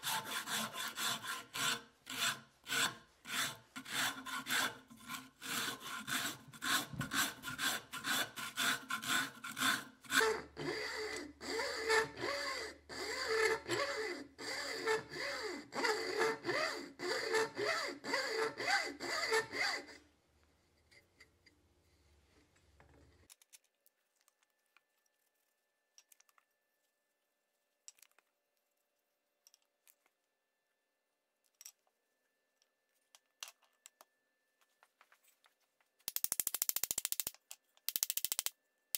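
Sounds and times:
rasp scraping wood: 0.0s - 10.7s.

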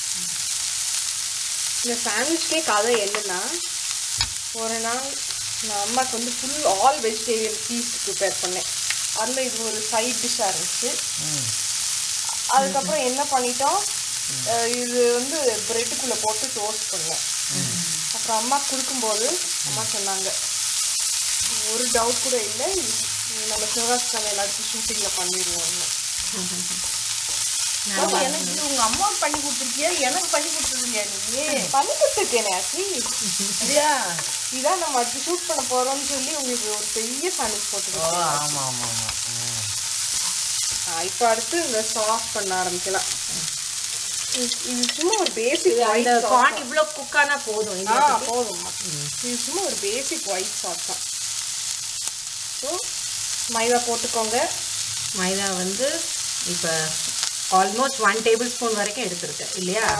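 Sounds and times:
vegetables sizzling in a pan: 0.0s - 59.9s
wavering pitched sounds: 26.2s - 26.9s.

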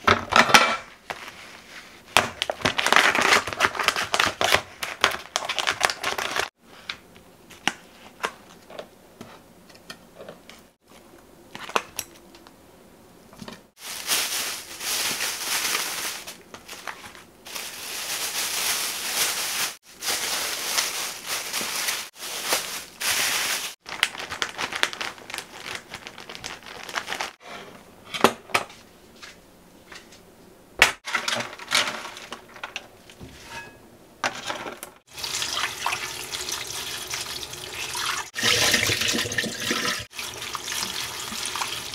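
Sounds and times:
plastic crinkling and rustling: 1.1s - 6.5s, 13.4s - 27.4s.

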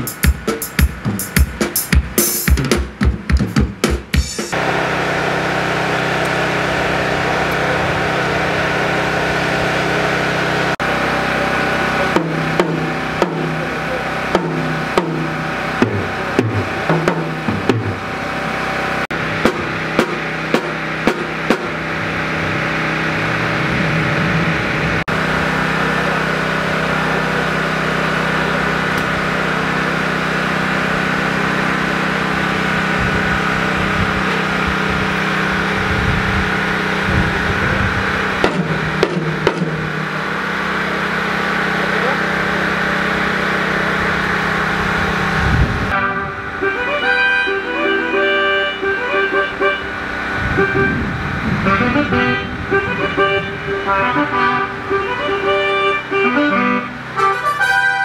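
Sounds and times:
drum hits with pitched ring: 11.4s - 18.3s, 19.1s - 22.0s, 38.4s - 40.4s.

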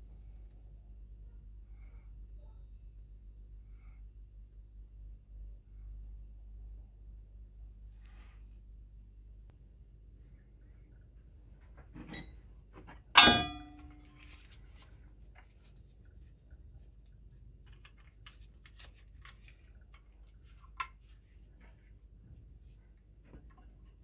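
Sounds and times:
light metallic ping: 12.1s - 14.0s
metal tin clanging: 12.2s - 14.2s.

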